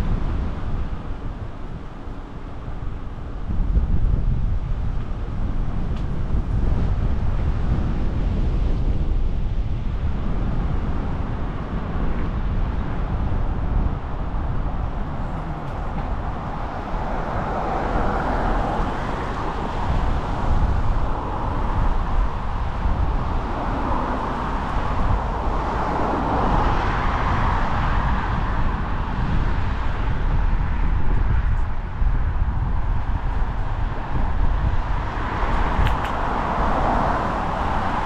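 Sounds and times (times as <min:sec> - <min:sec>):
wind buffeting microphone: 0:00.0 - 0:38.0
tyres rushing on tarmac: 0:13.9 - 0:31.8.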